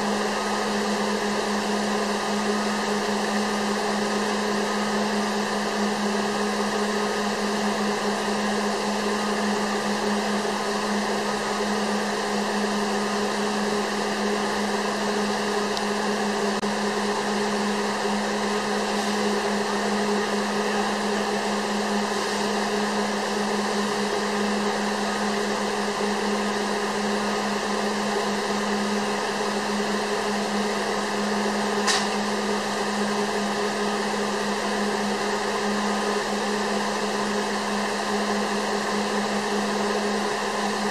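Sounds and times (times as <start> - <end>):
machine hum and hiss: 0.0 - 40.9
short click: 31.8 - 32.2.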